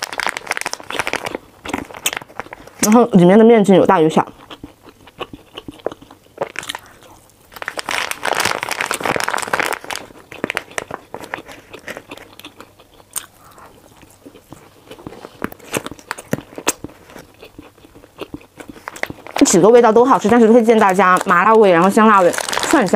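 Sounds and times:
plastic bag rustling: 0.0 - 2.9, 6.4 - 12.3, 18.7 - 22.9
close-up chewing: 0.0 - 3.1, 3.9 - 22.9.

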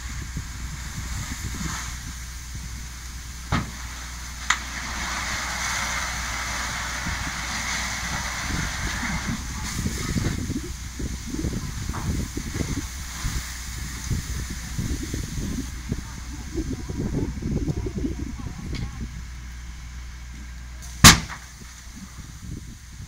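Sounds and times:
hose spraying water: 0.0 - 23.0
low rumble: 0.0 - 23.0
sharp cracks: 21.0 - 21.6.

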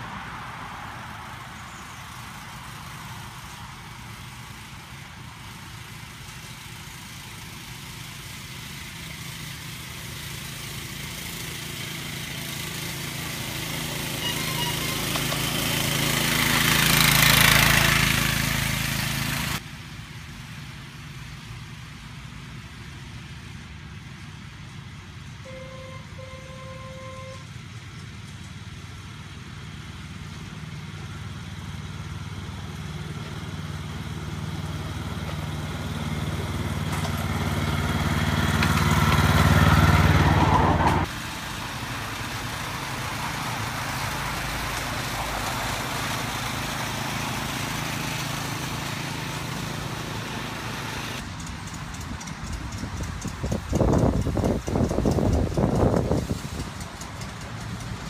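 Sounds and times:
miniature locomotive engine running: 2.1 - 58.0
locomotive horn toots: 14.1 - 15.4, 25.4 - 27.6.

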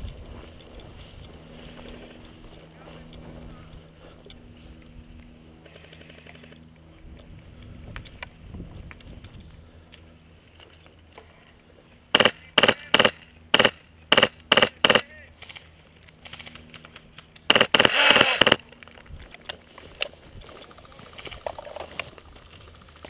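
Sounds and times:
airsoft rifle pneumatic pops: 17.5 - 18.6.

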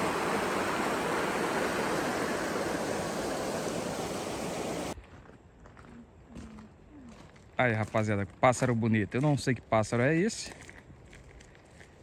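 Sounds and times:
water rushing over weir: 0.0 - 5.0.

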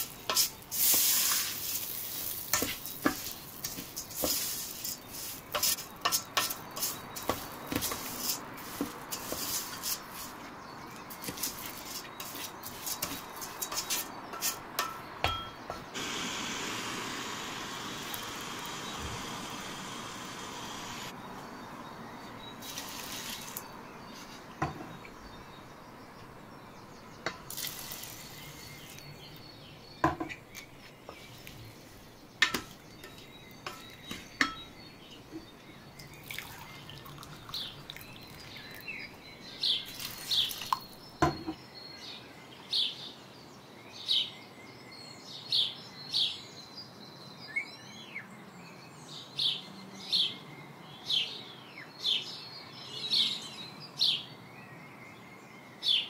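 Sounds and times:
small birds chirping: 0.0 - 56.0
wooden spoon knocking pot: 13.1 - 15.9, 32.4 - 34.7.

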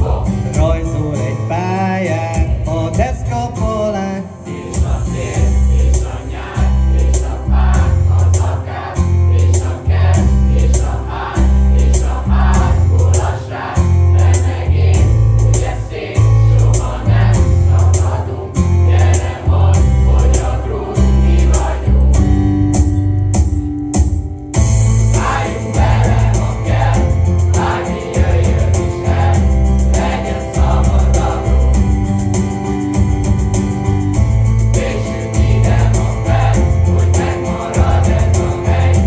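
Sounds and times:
group of voices singing: 0.0 - 0.9, 4.4 - 22.4, 25.0 - 32.2, 34.5 - 39.0
backing track with beat: 0.0 - 39.0.

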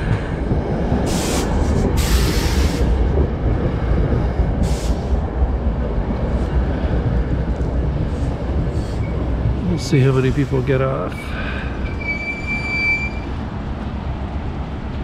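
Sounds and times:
heavy rumble of train wheels: 0.0 - 15.0.

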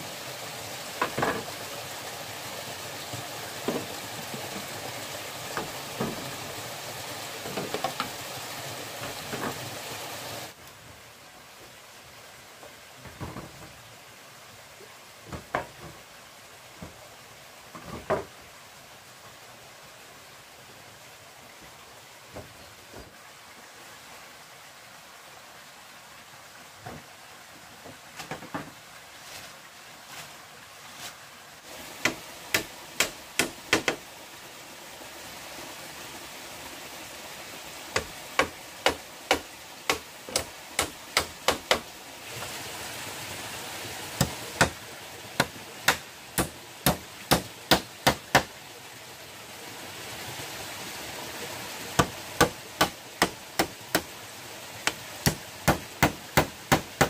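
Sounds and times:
small stream rushing: 0.0 - 57.0
tool striking bamboo: 32.0 - 34.0, 38.0 - 41.9, 44.2 - 44.8, 45.4 - 48.5, 52.0 - 54.1, 54.8 - 57.0.

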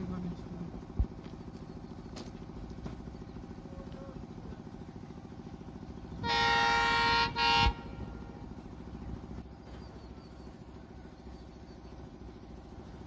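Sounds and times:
locomotive engine rumbling: 0.0 - 13.0
locomotive horn blasts: 6.2 - 8.4.

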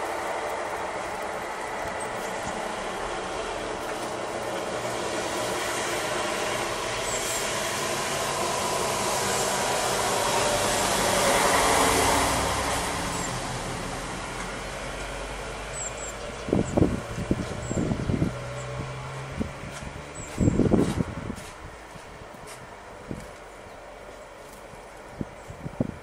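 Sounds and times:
vehicle passing: 0.0 - 26.0
bird chirps: 15.7 - 18.8, 20.1 - 20.7.

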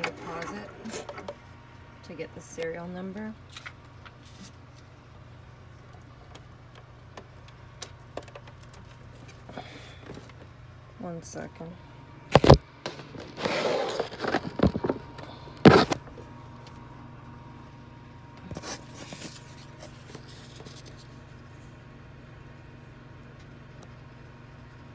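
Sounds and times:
low steady hum: 0.0 - 24.9
knocks and rustling of plastic: 12.4 - 15.0.

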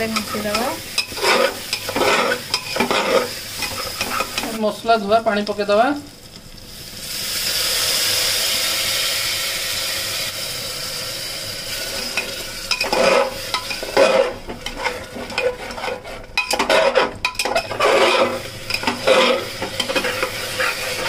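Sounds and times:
spoon scraping a pan: 0.0 - 4.6, 11.9 - 21.0
loud sizzle in hot oil: 0.0 - 21.0.

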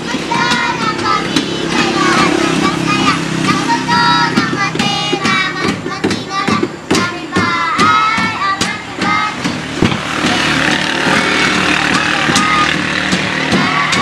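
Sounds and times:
children singing: 0.0 - 14.0.

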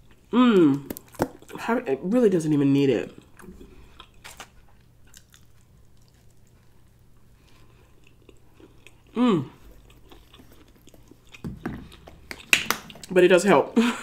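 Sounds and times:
hummed mmm: 0.2 - 1.0, 8.8 - 10.1
chewing with wet mouth clicks: 5.0 - 6.7, 7.4 - 13.2.

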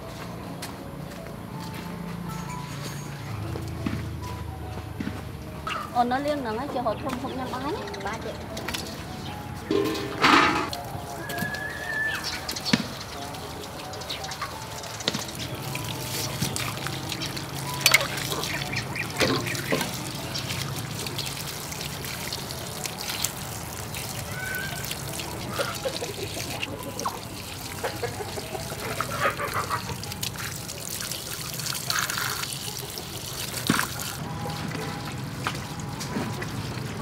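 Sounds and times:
tap water running and splashing: 8.5 - 37.0
ducks quacking: 16.5 - 20.1, 25.4 - 30.6.

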